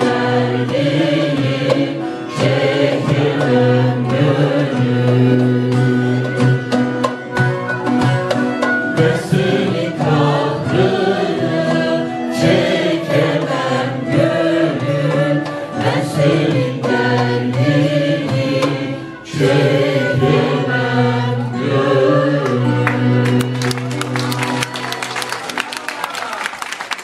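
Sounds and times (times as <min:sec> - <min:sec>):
choir singing: 0:00.0 - 0:07.1, 0:08.9 - 0:24.2
frame drum: 0:00.0 - 0:20.6.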